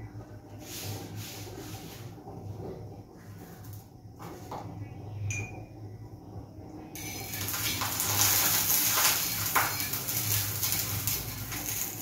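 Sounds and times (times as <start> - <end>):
oil sizzling on a hot pan: 6.8 - 12.0.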